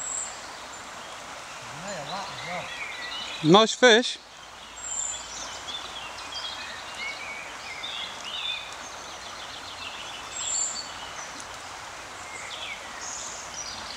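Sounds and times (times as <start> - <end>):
songbirds chirping and whistling: 0.0 - 3.6, 4.2 - 11.5
river water rushing: 0.0 - 13.9.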